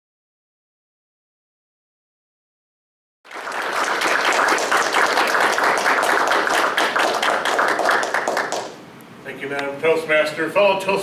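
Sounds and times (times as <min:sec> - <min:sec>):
audience applauding: 0:03.3 - 0:08.8.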